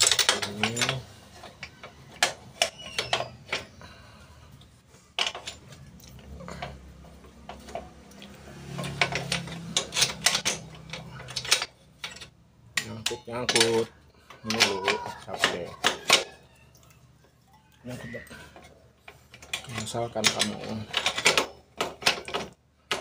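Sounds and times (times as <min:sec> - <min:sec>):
light metal clicks and knocks: 0:05.2 - 0:16.4, 0:18.5 - 0:23.0.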